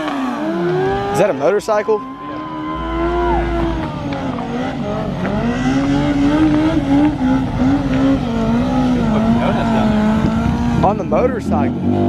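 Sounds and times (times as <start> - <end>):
engine revving high: 0.0 - 12.0.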